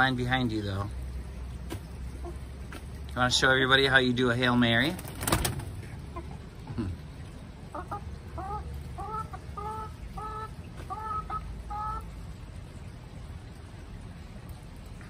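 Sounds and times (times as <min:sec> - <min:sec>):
hen calling: 0:07.7 - 0:12.1.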